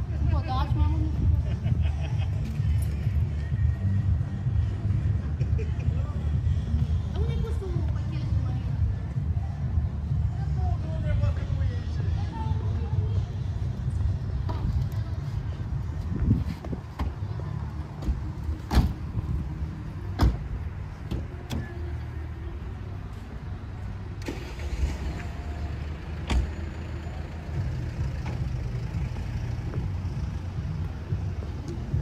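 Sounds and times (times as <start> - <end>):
car engine idling: 23.7 - 32.0.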